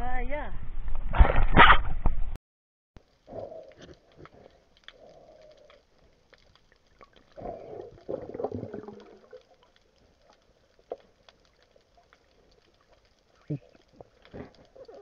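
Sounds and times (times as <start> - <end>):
faint underwater clicks and crackles: 3.0 - 15.0.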